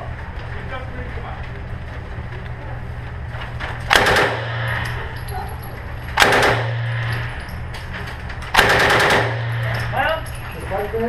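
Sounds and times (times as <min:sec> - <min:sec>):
automatic rifle fire: 0:03.9 - 0:04.9, 0:06.2 - 0:07.3, 0:08.5 - 0:09.7.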